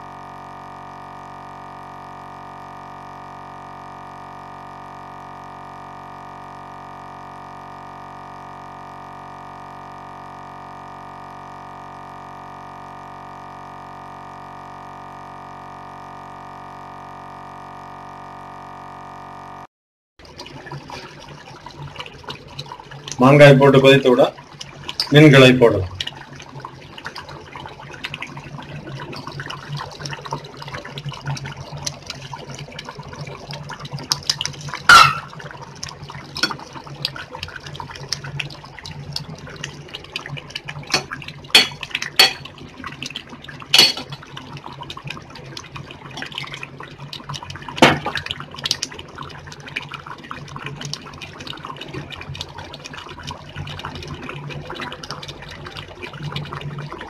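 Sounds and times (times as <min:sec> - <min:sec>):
curry bubbling in a pot: 0:00.0 - 0:19.3, 0:20.2 - 0:57.0
low hum: 0:00.0 - 0:19.7.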